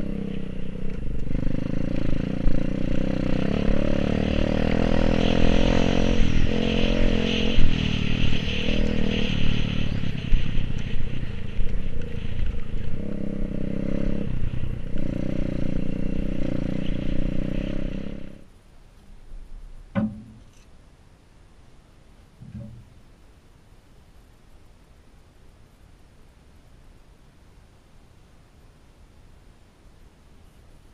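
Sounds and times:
dirt bike engine revving: 0:00.0 - 0:18.4
rattle from rough track: 0:00.0 - 0:18.4.

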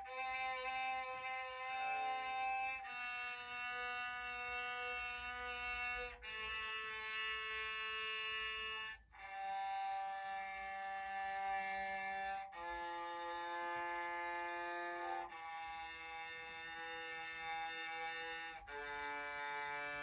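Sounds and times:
bowed electric cello notes: 0:00.0 - 0:20.0.

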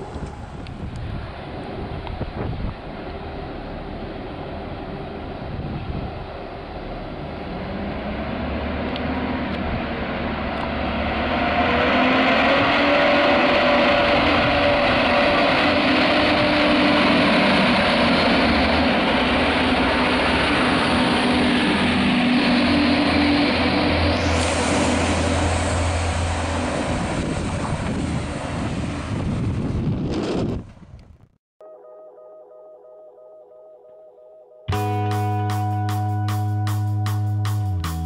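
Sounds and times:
humming whine rising in pitch: 0:00.0 - 0:29.7
diesel railcar passing: 0:00.0 - 0:30.8.

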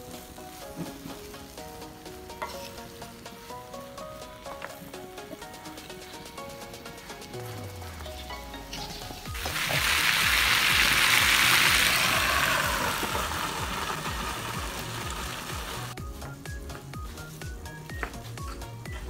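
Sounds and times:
food sizzling in a pan: 0:00.0 - 0:05.8, 0:07.2 - 0:16.0
background music with steady beat: 0:00.0 - 0:19.0.

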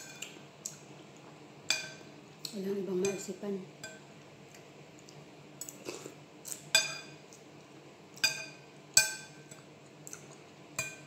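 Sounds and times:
metal spoon clinking on ceramic bowl: 0:06.7 - 0:07.2, 0:08.2 - 0:09.4, 0:10.8 - 0:11.0.

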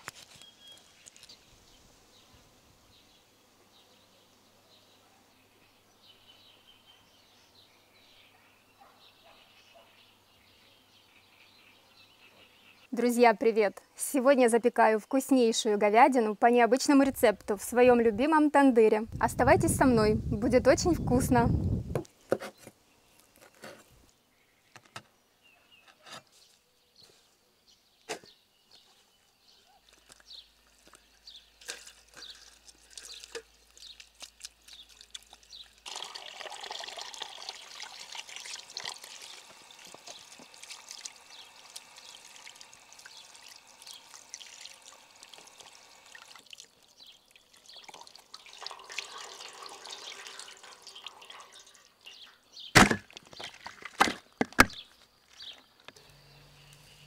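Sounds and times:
water dripping: 0:31.6 - 0:52.3
hose water splashing into metal tray: 0:32.7 - 0:51.9.

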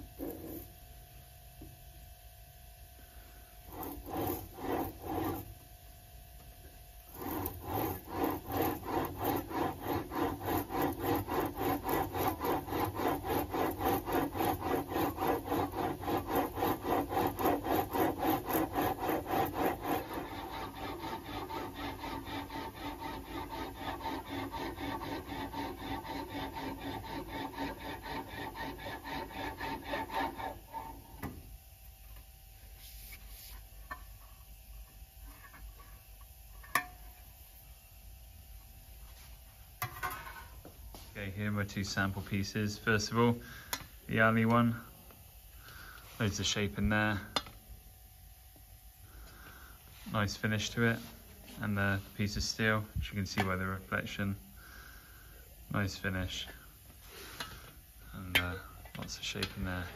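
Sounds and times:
steel sheet rubbing in rollers: 0:03.7 - 0:05.5, 0:07.2 - 0:31.1.

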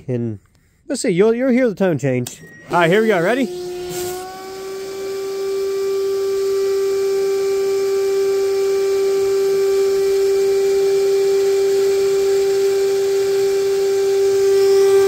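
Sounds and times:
shop vac motor whine: 0:02.4 - 0:15.0
water sucked through hose: 0:02.9 - 0:07.5.

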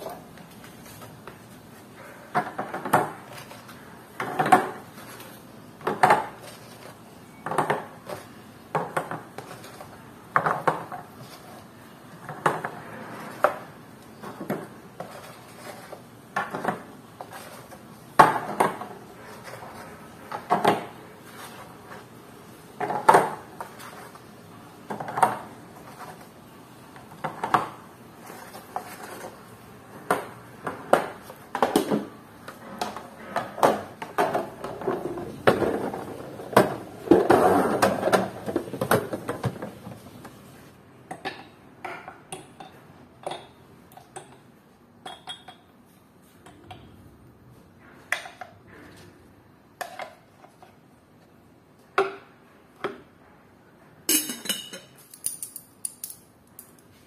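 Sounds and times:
dishes and cutlery clinking: 0:45.0 - 0:45.7, 0:54.1 - 0:56.9.

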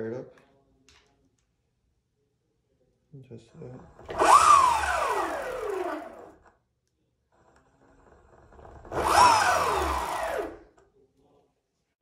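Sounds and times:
electric motor whine: 0:04.1 - 0:06.4, 0:08.8 - 0:10.6.

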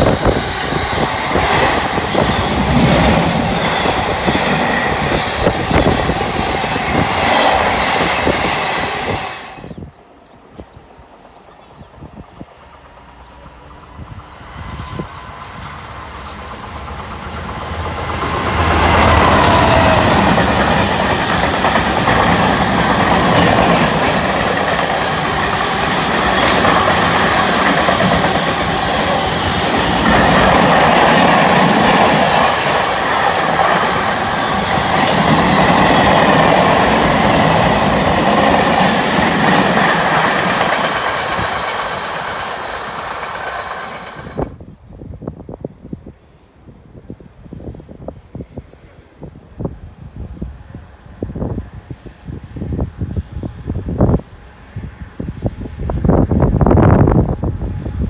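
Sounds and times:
train wheels clattering on rails: 0:00.0 - 0:09.7, 0:16.4 - 0:44.6
diesel locomotive passing: 0:00.0 - 0:58.0.

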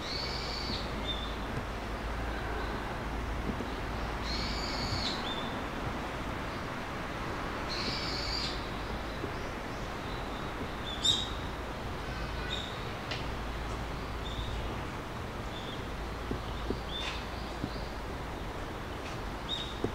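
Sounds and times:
birds calling harshly: 0:00.0 - 0:05.8, 0:06.4 - 0:19.9
steady low hum: 0:00.0 - 0:19.9.

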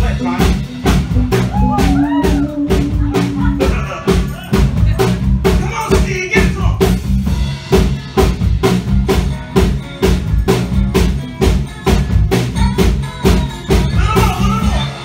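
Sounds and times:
electric guitars: 0:00.0 - 0:05.6
bass line: 0:00.0 - 0:15.0
drum kit beat: 0:00.0 - 0:15.0.

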